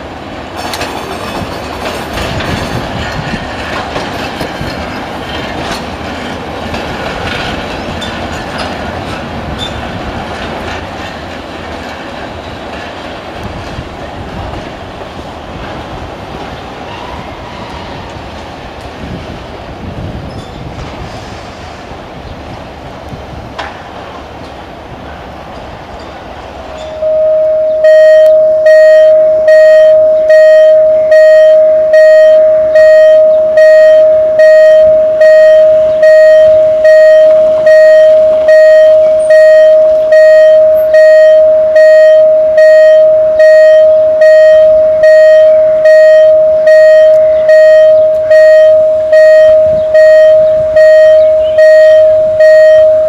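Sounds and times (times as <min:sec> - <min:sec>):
level crossing warning beeps: 0:26.7 - 0:53.0.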